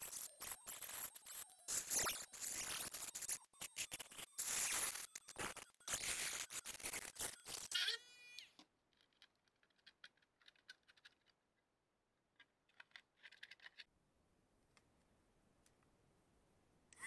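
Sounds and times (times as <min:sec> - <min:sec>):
rotary tool cutting plastic: 0:00.0 - 0:08.6
plastic clicking and crackling: 0:08.6 - 0:11.4, 0:12.3 - 0:13.9.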